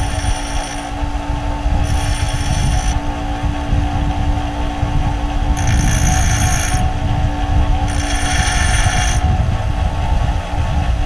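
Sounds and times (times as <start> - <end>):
bench grinder motor running: 0.0 - 1.0, 1.8 - 3.1, 5.6 - 7.0, 7.8 - 9.3
drill bits grinding on wheel: 0.0 - 1.0, 1.8 - 3.0, 5.6 - 7.0, 7.9 - 9.3.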